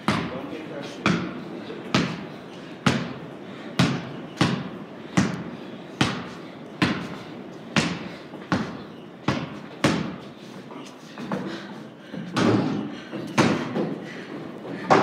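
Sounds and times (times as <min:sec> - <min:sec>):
basketball bouncing on wooden floor: 0:00.0 - 0:00.3, 0:02.8 - 0:03.2, 0:03.8 - 0:05.4, 0:07.8 - 0:10.2.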